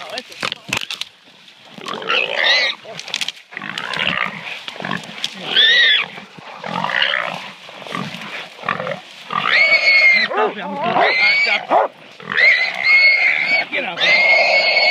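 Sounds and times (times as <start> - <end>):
hog squealing in distress: 9.4 - 14.9.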